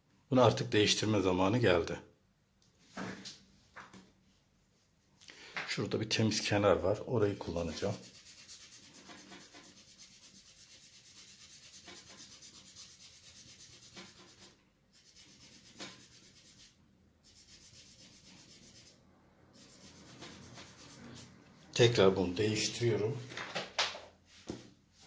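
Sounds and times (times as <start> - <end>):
cotton rubbing pastel on paper: 7.2 - 21.4.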